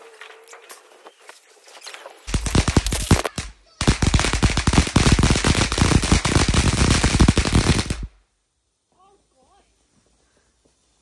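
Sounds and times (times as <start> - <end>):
firework fountain crackling: 2.3 - 8.2.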